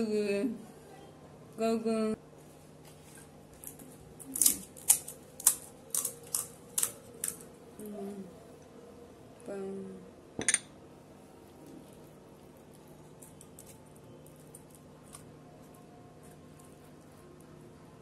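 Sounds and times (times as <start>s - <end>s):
crisp shells cracking: 3.6s - 7.5s.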